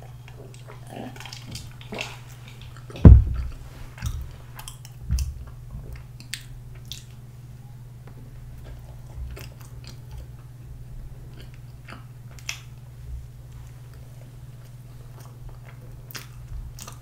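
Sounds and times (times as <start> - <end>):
heavy low thump: 3.0 - 4.3
biting and chewing bread: 13.9 - 17.0.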